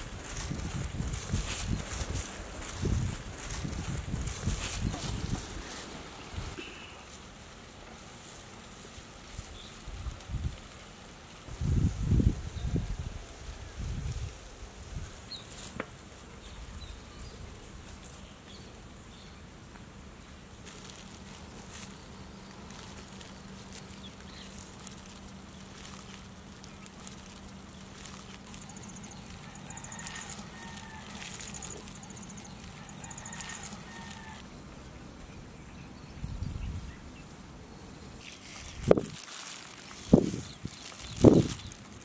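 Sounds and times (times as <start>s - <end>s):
chickens calling faintly: 20.8s - 35.6s.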